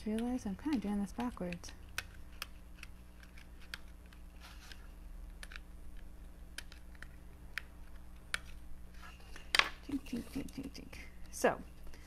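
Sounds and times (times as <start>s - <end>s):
pointed tool clicking on paper: 0.0s - 8.6s.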